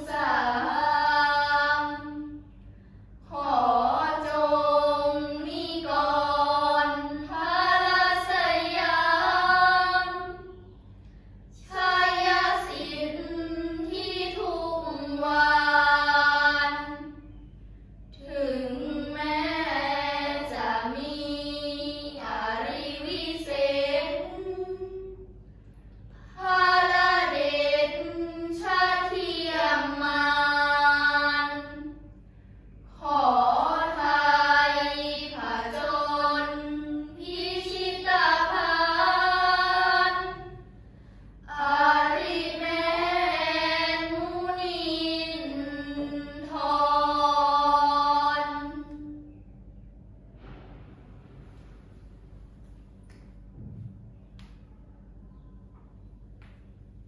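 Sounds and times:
girls chanting in unison: 0.0s - 2.4s, 3.2s - 10.7s, 11.6s - 17.2s, 18.2s - 25.2s, 26.2s - 32.1s, 32.9s - 40.7s, 41.4s - 49.2s.

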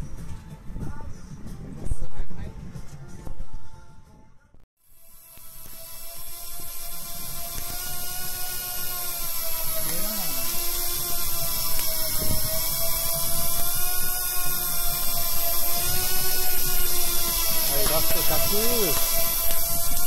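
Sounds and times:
fishing reel motor whine: 4.8s - 20.0s.

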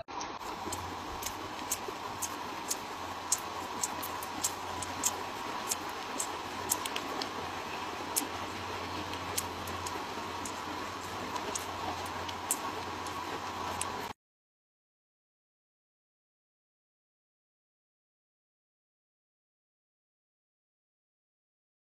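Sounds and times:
background hum: 0.0s - 14.2s
kittens licking fur: 0.4s - 14.1s.

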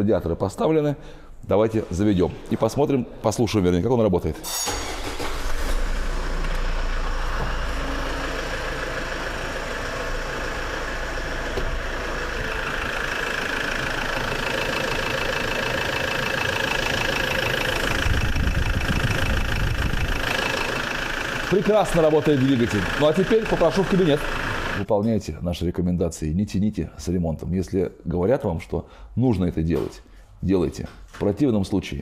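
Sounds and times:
diesel engine idling: 4.8s - 24.9s.

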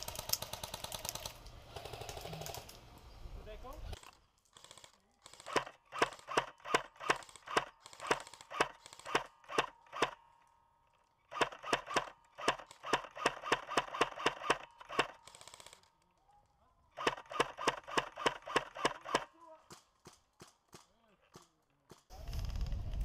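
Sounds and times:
airsoft rifle shots: 4.6s - 10.3s, 11.3s - 15.9s, 17.0s - 22.0s.

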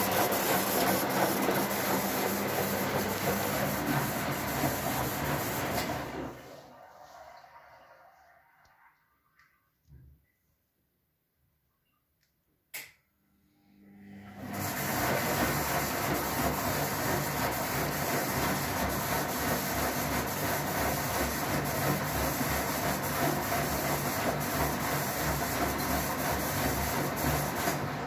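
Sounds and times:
washing machine drum motor: 0.0s - 6.5s, 14.1s - 28.0s.

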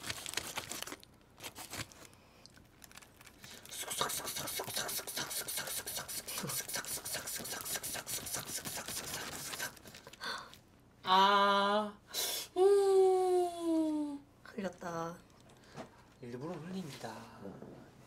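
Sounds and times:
plastic knife scraping on foil: 0.0s - 2.1s.

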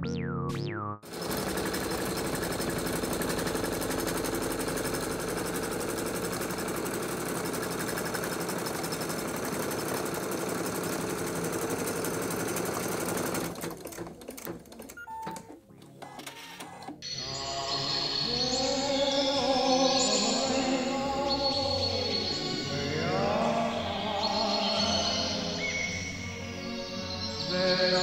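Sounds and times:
sewing machine stitching: 1.1s - 17.0s.

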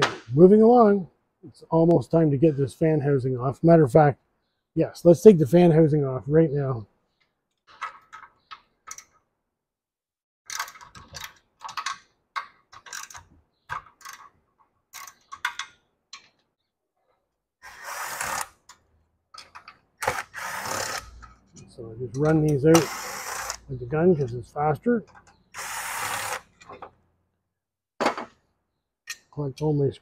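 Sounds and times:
cordless screw gun running: 20.0s - 21.1s, 22.9s - 23.6s, 25.6s - 26.4s
hand tools clicking on metal: 20.8s - 23.6s.

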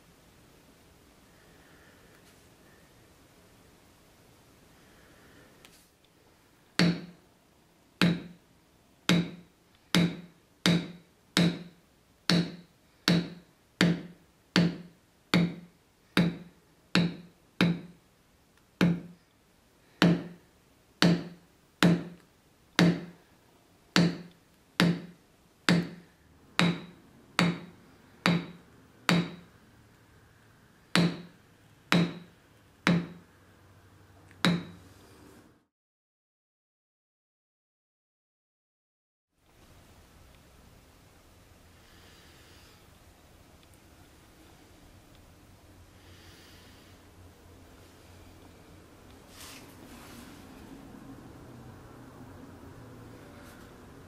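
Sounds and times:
maul tapping a leather stamping tool: 6.8s - 7.2s, 8.0s - 8.4s, 9.1s - 18.0s, 18.8s - 19.2s, 20.0s - 20.4s, 21.0s - 22.2s, 22.8s - 23.2s, 23.9s - 29.5s, 30.9s - 33.3s, 34.4s - 34.8s.

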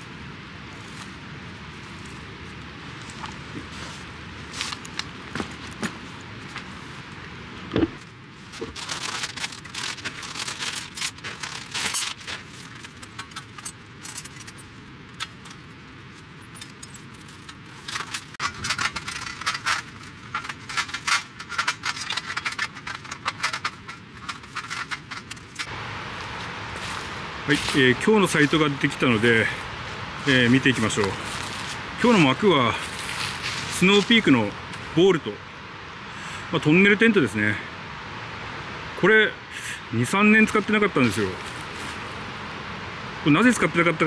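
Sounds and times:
metal rods clinking and rattling: 8.6s - 25.7s.

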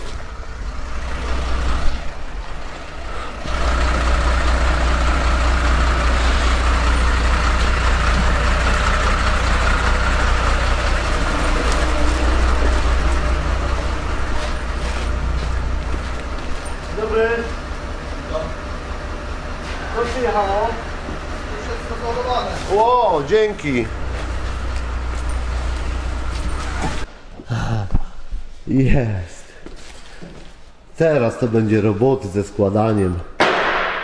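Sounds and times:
truck engine running: 0.0s - 27.1s.

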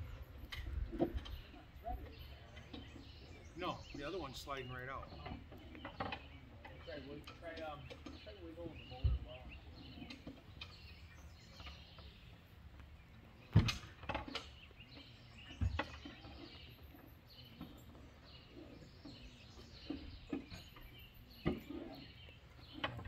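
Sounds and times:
faint birds chirping: 0.0s - 23.0s.

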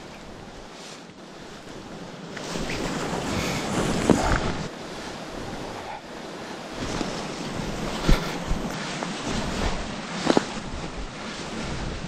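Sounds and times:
footsteps in deep snow: 6.7s - 12.0s.

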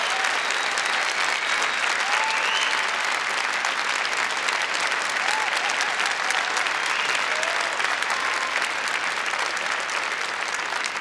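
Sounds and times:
audience applause: 0.0s - 11.0s.

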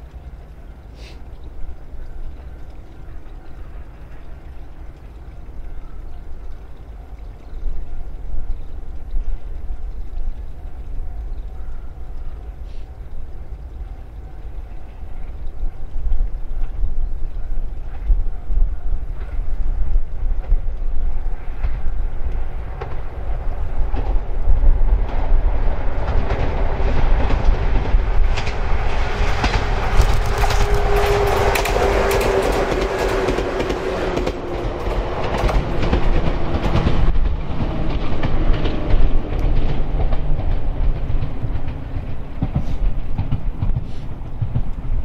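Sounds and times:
electric train passing: 21.2s - 45.0s
wheels clicking over rail joints: 21.4s - 45.0s.

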